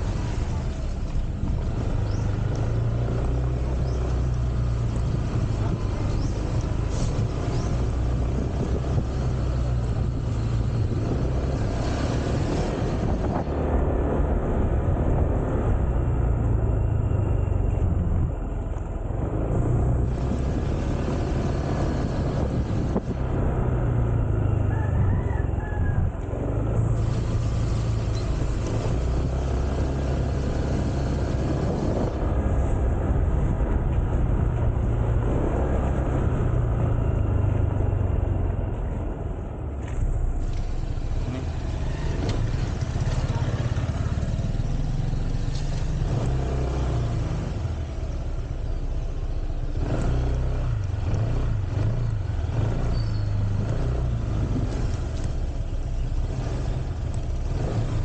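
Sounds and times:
wind noise on microphone: 0.0s - 44.6s
road noise: 0.0s - 58.0s
scooter engine humming: 20.0s - 57.6s.

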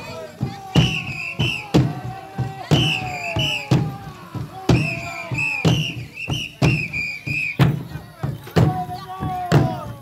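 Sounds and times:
drum beaten steadily: 0.0s - 10.0s
voices calling in crowd: 0.0s - 10.0s.

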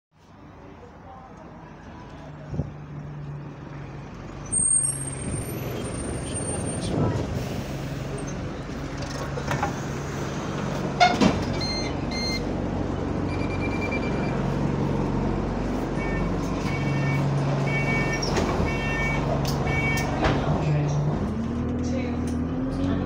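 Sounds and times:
bus diesel engine idling: 0.6s - 23.0s
electronic beeps: 11.6s - 12.4s, 13.3s - 14.4s.

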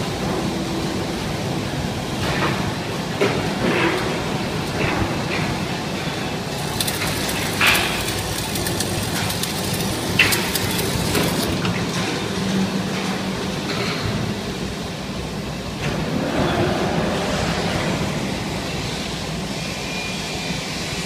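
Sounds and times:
steady machine hum: 0.0s - 21.0s
welding arc crackling: 6.4s - 12.0s.

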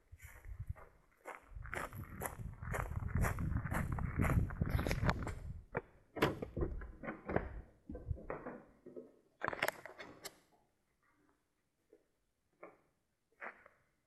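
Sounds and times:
footsteps: 0.0s - 5.8s
wooden door knocking and clunking: 6.2s - 8.5s.

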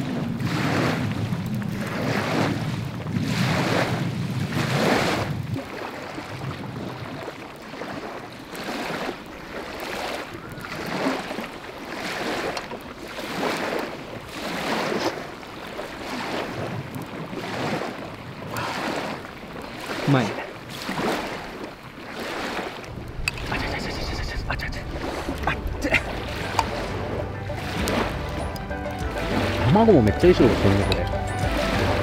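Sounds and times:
small waves washing on shore: 0.0s - 32.0s
low rumble: 22.9s - 32.0s.

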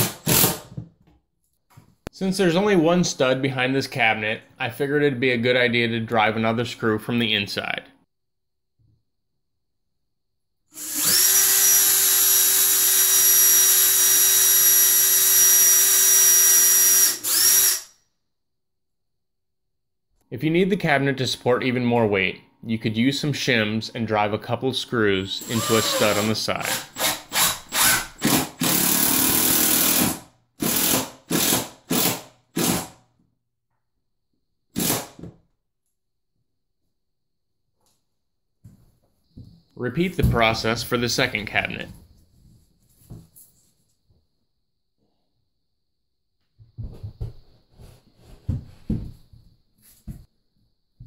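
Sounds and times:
cordless drill whining: 10.8s - 17.9s, 25.4s - 31.5s.

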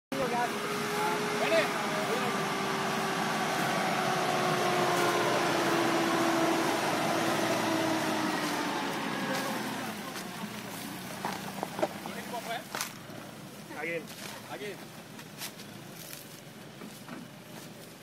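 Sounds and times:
pickup engine at low revs: 0.1s - 13.7s.

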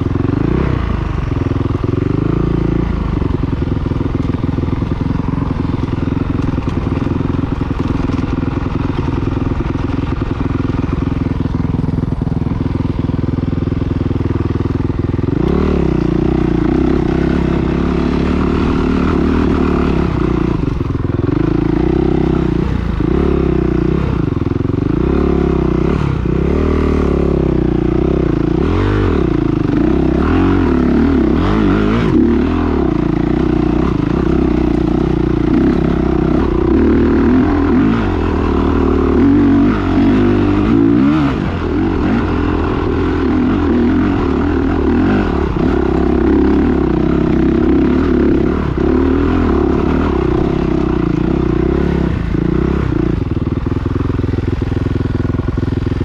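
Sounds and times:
dirt bike engines racing: 15.3s - 53.2s.

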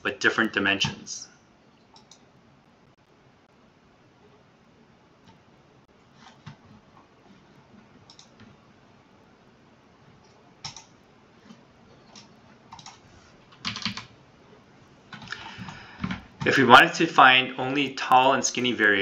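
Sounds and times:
faint background hiss: 0.0s - 19.0s
mouse and keyboard clicks: 1.8s - 2.2s, 8.0s - 8.6s, 11.5s - 13.0s.

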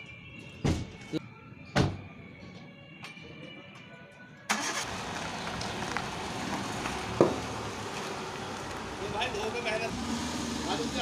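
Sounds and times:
car engine starting and running: 4.5s - 11.0s.

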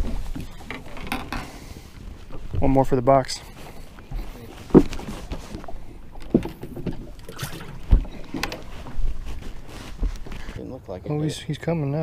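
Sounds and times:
knocks and thuds in boat: 0.0s - 2.8s, 4.0s - 10.5s.

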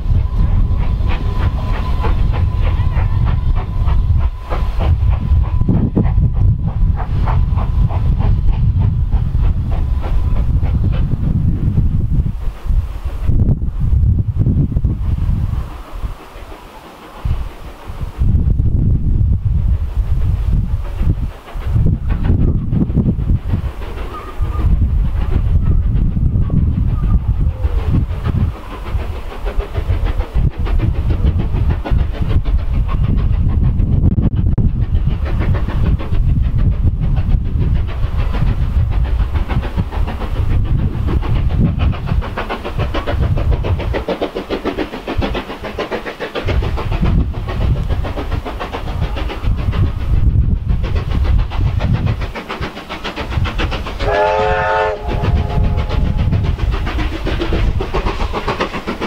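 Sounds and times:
steam locomotive rumble: 0.0s - 59.0s
steam whistle: 54.0s - 56.1s.

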